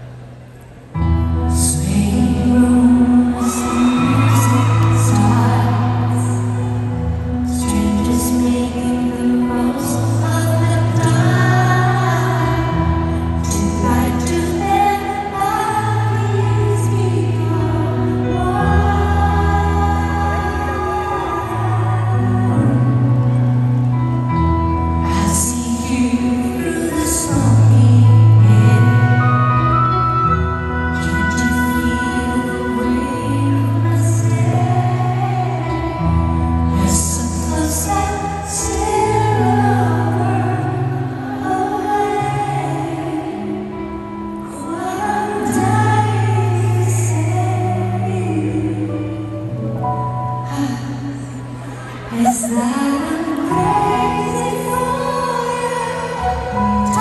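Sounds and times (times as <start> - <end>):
woman singing into microphone: 1.0 - 57.0.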